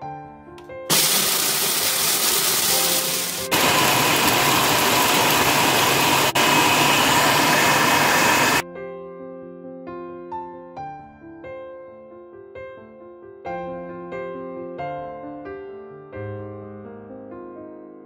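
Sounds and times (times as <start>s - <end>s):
soft piano music: 0.0s - 0.9s, 8.6s - 18.0s
food processor chopping: 0.9s - 8.6s.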